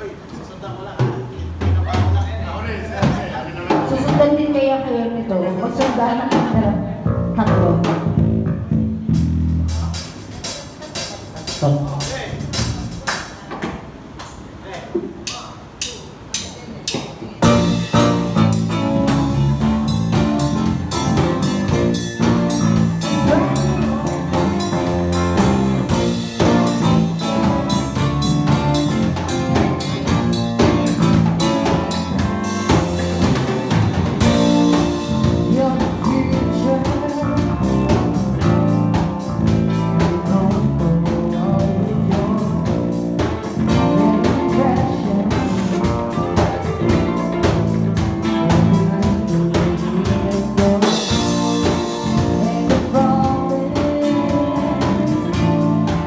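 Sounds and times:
live band playing: 0.0 - 14.5, 15.5 - 56.0
drum kit beat: 0.9 - 4.6, 5.7 - 56.0
person singing: 23.0 - 25.1, 34.3 - 38.7, 39.7 - 56.0.

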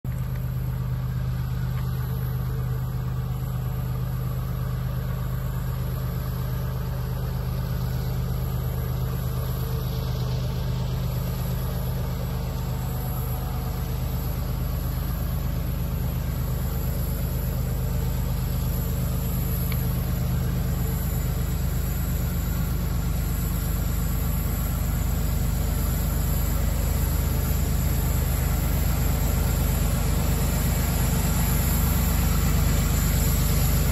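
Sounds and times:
diesel locomotive engine drone: 0.0 - 33.9.

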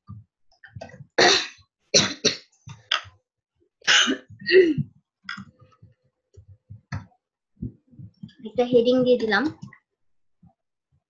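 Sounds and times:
person coughing: 3.9 - 4.9.

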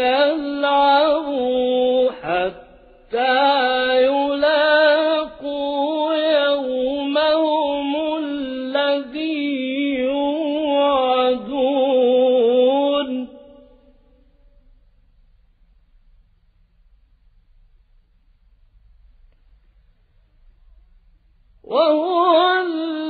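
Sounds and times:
man chanting melodically: 0.0 - 13.9.

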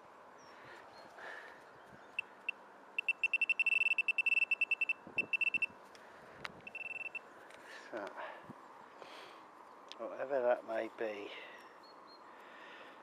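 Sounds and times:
metal detector probe beeping: 2.2 - 5.8, 6.6 - 7.2.

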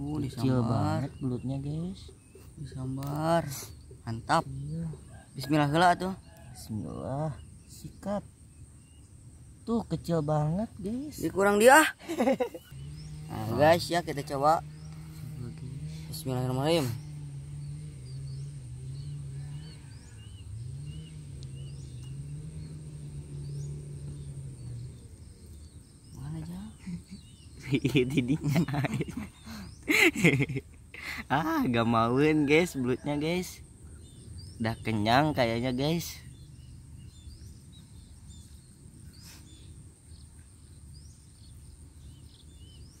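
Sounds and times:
small birds chirping: 0.0 - 43.0
rustle: 1.4 - 43.0
low engine drone: 12.7 - 30.9, 33.8 - 42.2
low background rumble: 33.6 - 43.0.

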